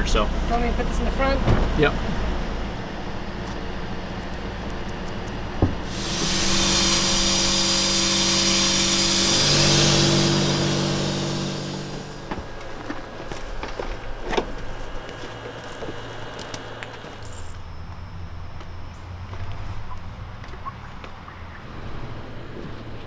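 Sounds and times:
motor hum: 0:00.0 - 0:23.0
fogger hissing and whining: 0:01.9 - 0:19.0.

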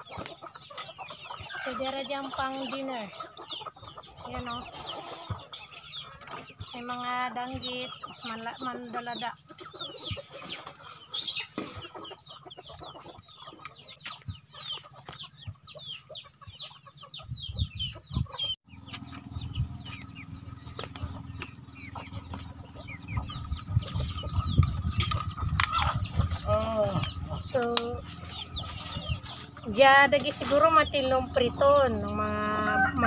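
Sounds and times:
chickens clucking and chirping: 0:00.0 - 0:33.0
low rumble: 0:18.7 - 0:33.0.

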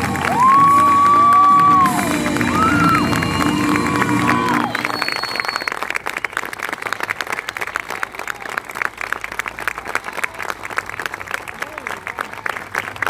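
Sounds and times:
music: 0:00.0 - 0:05.2
audience clapping: 0:00.0 - 0:13.0.

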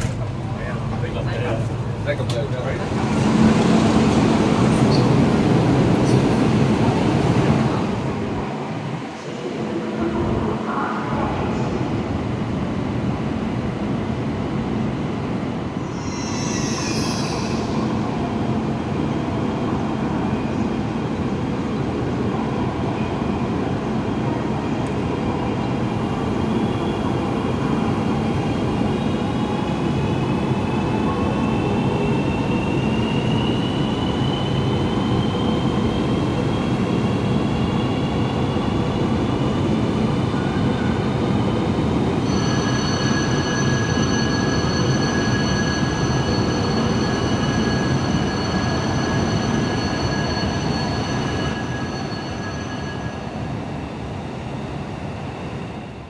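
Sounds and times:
train rumble: 0:00.0 - 0:15.9
train whine rising in pitch: 0:42.1 - 0:56.0.

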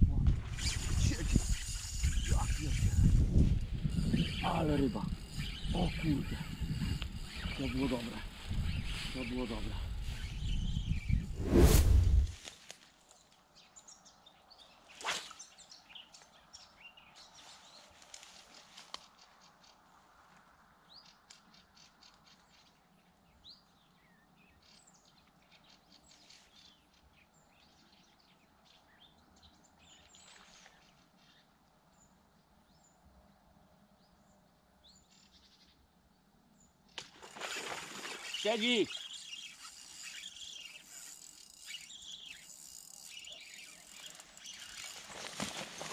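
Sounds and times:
birds chirping and calling: 0:00.6 - 0:11.2, 0:38.2 - 0:45.9.

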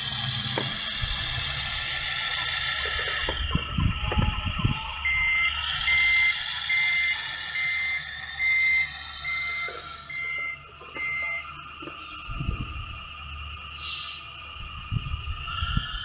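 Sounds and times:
truck reversing beeps: 0:00.0 - 0:16.0.

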